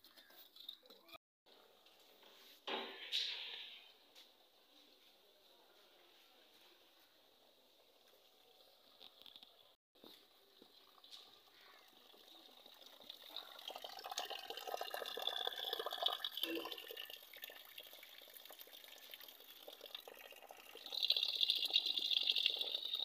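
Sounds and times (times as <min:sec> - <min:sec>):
water trickling from drain pipe: 0:08.3 - 0:23.0.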